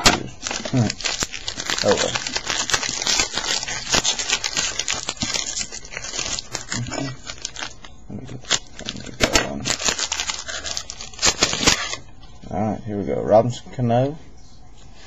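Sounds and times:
wrapper crinkling and tearing: 0.4s - 12.1s.

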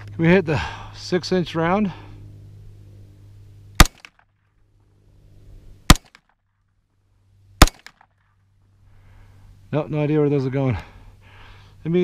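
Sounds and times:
pistol shots with echo: 3.8s - 4.2s, 5.9s - 6.2s, 7.6s - 8.1s.

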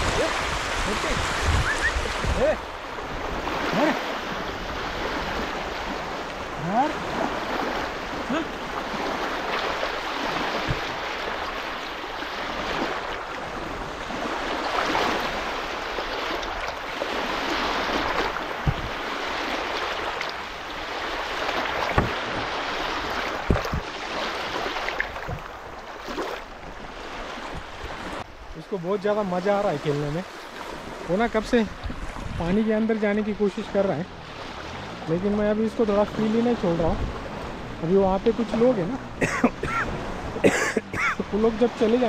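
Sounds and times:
water lapping and splashing: 0.0s - 42.0s
sharp knocks: 23.4s - 23.9s.

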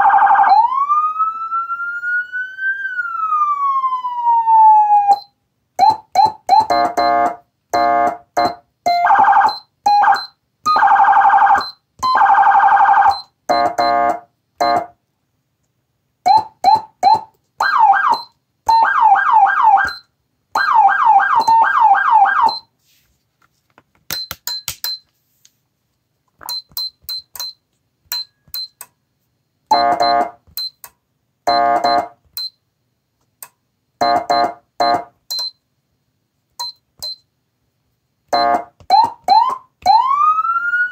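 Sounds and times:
electronic siren tones: 0.0s - 14.9s, 16.3s - 20.0s, 20.6s - 22.7s, 38.4s - 40.9s.

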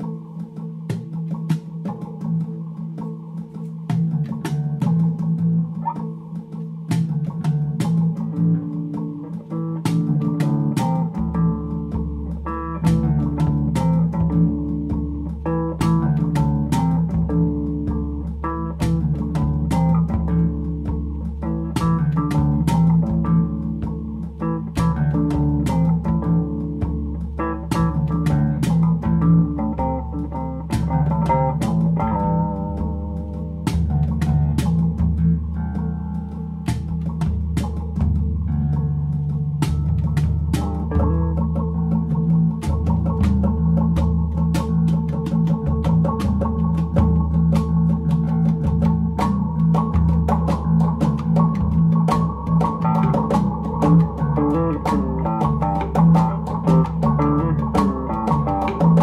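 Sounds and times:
bass line: 0.0s - 59.0s
plucked guitar: 0.0s - 59.0s
steady beat: 0.0s - 59.0s.

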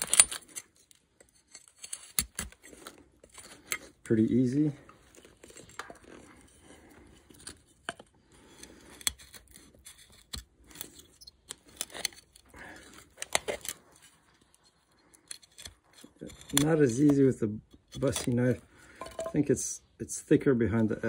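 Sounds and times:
knife cracking wood: 1.5s - 3.9s, 7.4s - 13.8s, 15.1s - 18.5s.

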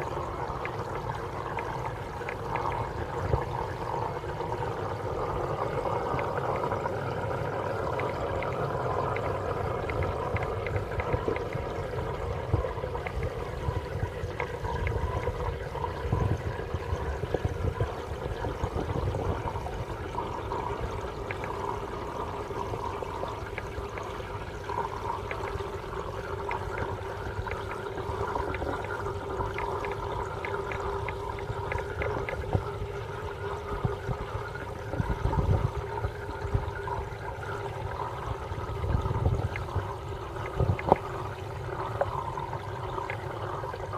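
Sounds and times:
aquarium water trickling: 0.0s - 43.9s
steady hum: 0.0s - 43.9s.

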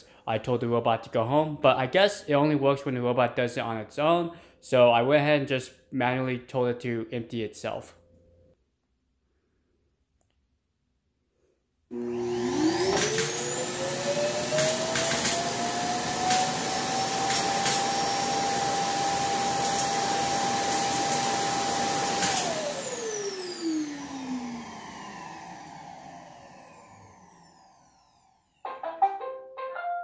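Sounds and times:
suction motor whining: 11.9s - 28.4s.

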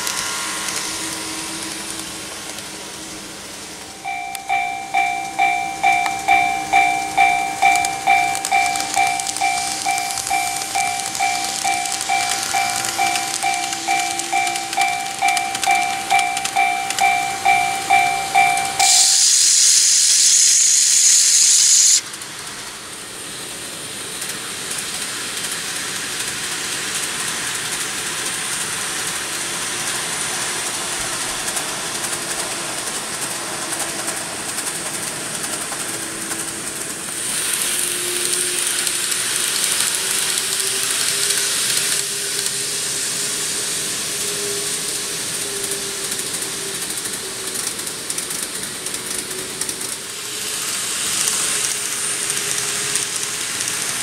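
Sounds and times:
loud hiss: 0.0s - 22.0s, 37.0s - 46.9s
train running noise: 0.0s - 54.0s
level crossing bell dinging: 4.0s - 19.3s.

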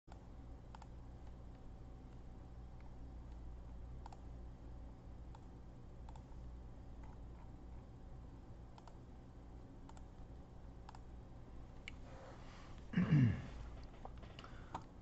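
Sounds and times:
faint computer clicks: 0.1s - 1.0s, 4.0s - 4.3s, 5.3s - 6.3s, 8.7s - 9.0s, 9.8s - 11.1s
low steady hum: 0.1s - 15.0s.

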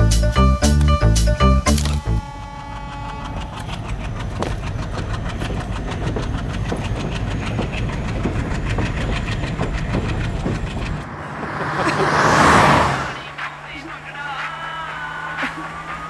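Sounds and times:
train rumble: 0.0s - 16.0s
train wheels clacking on rails: 2.2s - 12.0s, 13.2s - 16.0s.

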